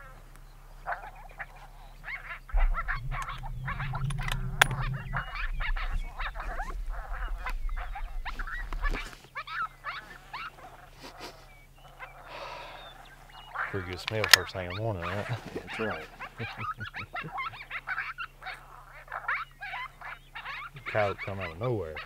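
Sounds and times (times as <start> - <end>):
low rumble: 2.5 - 9.9
coyote pup yips and howls: 14.6 - 22.0.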